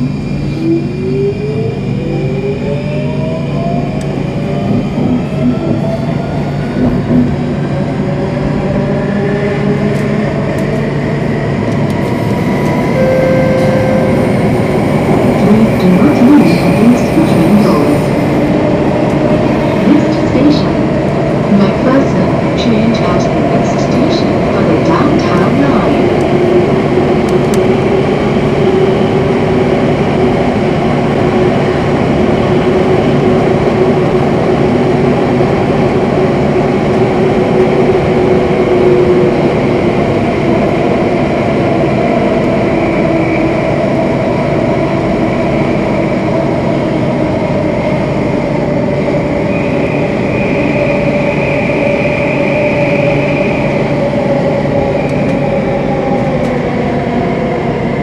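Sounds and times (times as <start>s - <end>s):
train rumbling in tunnel: 0.0s - 58.0s.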